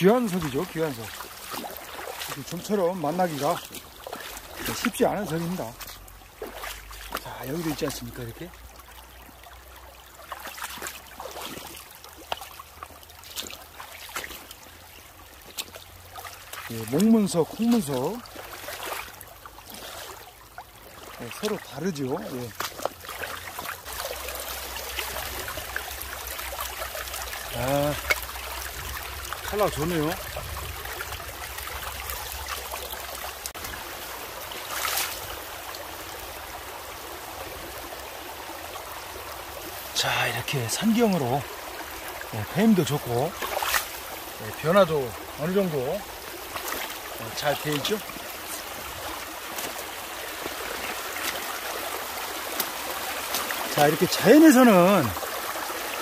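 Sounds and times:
small water splashes: 0.0 - 56.0
stream gurgling over pebbles: 0.0 - 56.0.

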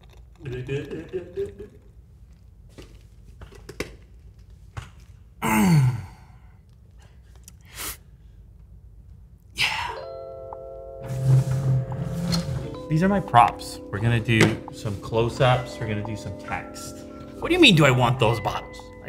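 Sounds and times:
man sighing ahh: 5.4 - 6.5, 9.6 - 10.0.

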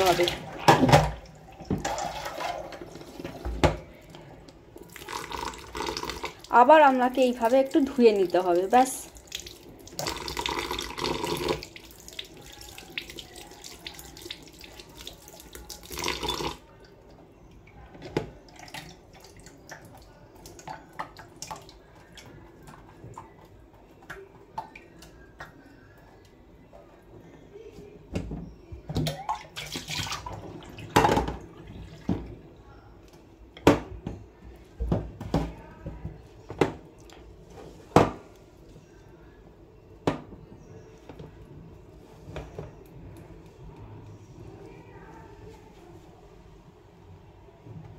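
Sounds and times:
water dripping: 7.3 - 17.6.

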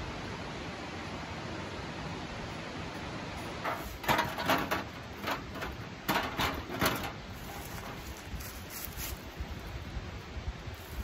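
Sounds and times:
steady background hiss: 0.0 - 11.0
footsteps crunching through dry leaves: 7.3 - 9.9, 10.6 - 11.0.

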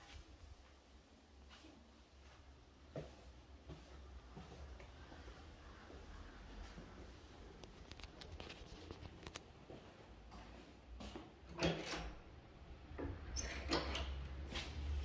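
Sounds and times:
door being pulled open: 11.5 - 12.3, 13.0 - 14.5.

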